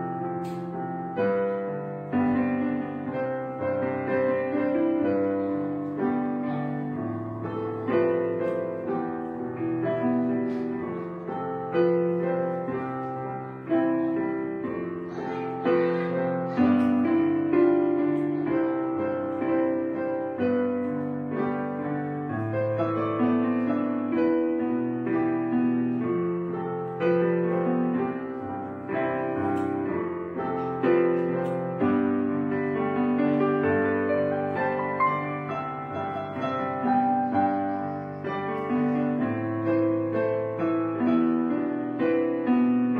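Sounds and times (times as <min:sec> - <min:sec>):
slow piano chords: 0:00.0 - 0:42.9.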